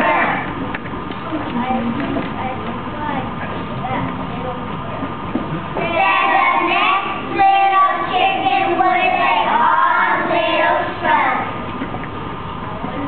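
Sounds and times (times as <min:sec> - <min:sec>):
children chanting in chorus: 0:00.0 - 0:00.5, 0:05.8 - 0:11.6.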